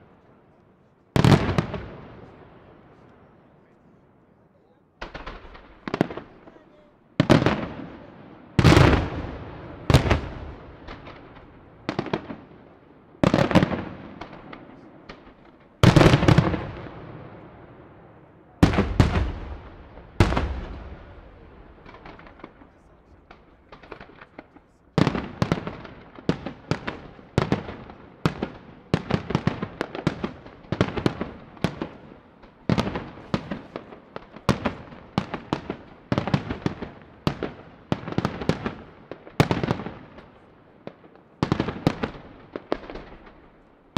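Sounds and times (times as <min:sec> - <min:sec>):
faint firework crackle: 0:00.0 - 0:43.9
firework booms echoing: 0:01.1 - 0:03.0, 0:05.0 - 0:43.7
rapid firework reports: 0:18.5 - 0:25.9.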